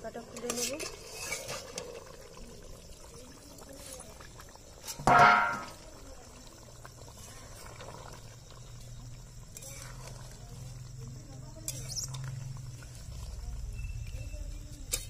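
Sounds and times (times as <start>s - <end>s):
metal lid scraping and ringing: 5.0s - 5.8s.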